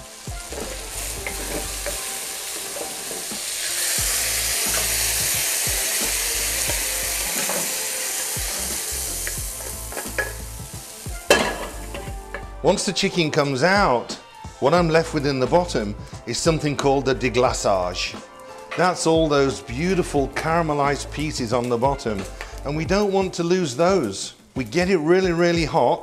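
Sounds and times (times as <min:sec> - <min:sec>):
chicken sizzling in oil: 0:00.0 - 0:13.0
wooden spoon scraping metal pan: 0:00.4 - 0:03.8, 0:07.2 - 0:10.5.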